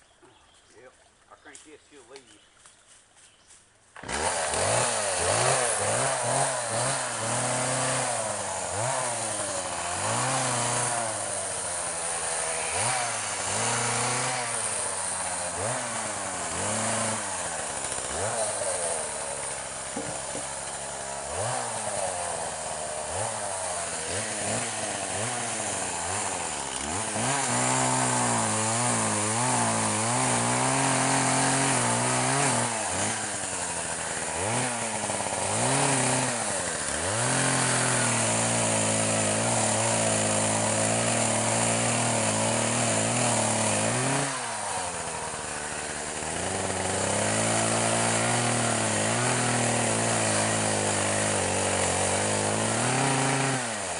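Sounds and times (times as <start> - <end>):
chainsaw revving and cutting log: 4.0 - 53.9.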